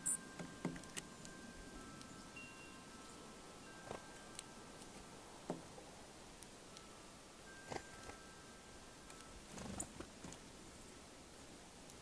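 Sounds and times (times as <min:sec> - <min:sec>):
steady ringing tones: 0:00.0 - 0:09.5
faint outdoor ambience: 0:00.0 - 0:12.0.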